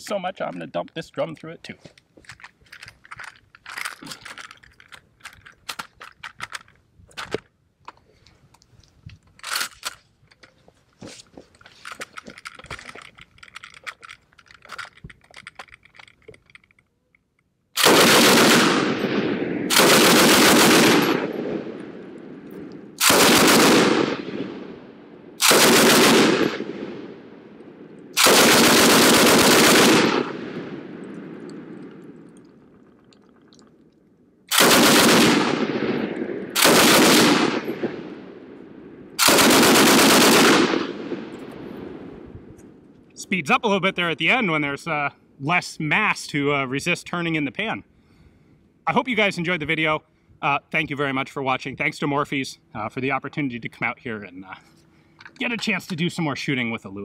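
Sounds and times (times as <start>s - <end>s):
gun handling clicks and knocks: 0.4s - 17.7s, 20.9s - 23.2s, 30.6s - 34.7s, 54.6s - 56.1s
machine gun automatic fire: 17.8s - 21.8s, 23.0s - 24.6s, 25.4s - 27.0s, 28.2s - 30.8s, 34.5s - 38.1s, 39.2s - 41.3s.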